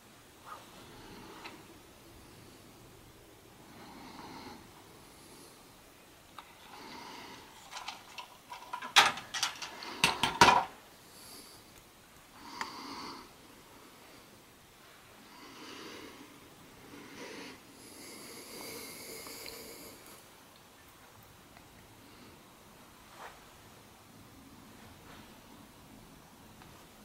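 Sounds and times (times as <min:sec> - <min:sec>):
person breathing heavily: 0:00.8 - 0:05.8, 0:06.6 - 0:07.9, 0:12.4 - 0:14.4, 0:15.1 - 0:20.3.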